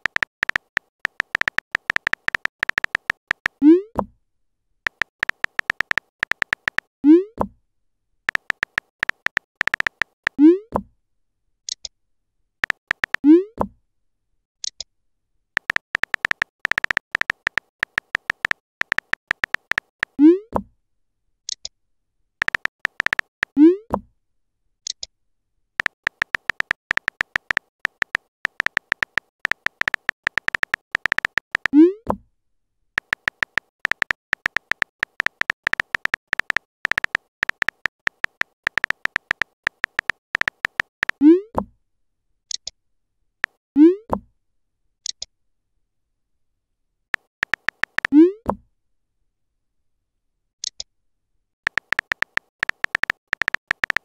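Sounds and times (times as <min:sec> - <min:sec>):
rapid keyboard typing clicks: 0:00.0 - 0:03.6, 0:04.9 - 0:06.9, 0:08.3 - 0:10.4, 0:12.6 - 0:13.2, 0:15.6 - 0:20.2, 0:22.4 - 0:23.6, 0:25.8 - 0:31.8, 0:33.0 - 0:41.2, 0:47.2 - 0:48.1, 0:51.6 - 0:54.0.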